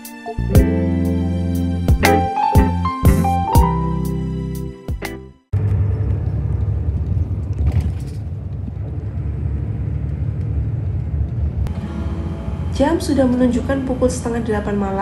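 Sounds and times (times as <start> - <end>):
bus engine rumble: 5.6 - 15.0.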